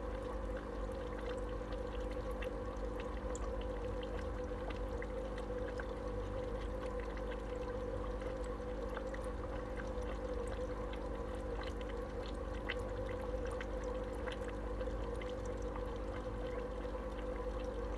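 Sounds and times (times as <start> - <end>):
aquarium filter bubbling water: 0.0 - 17.9
steady hum: 0.0 - 17.9.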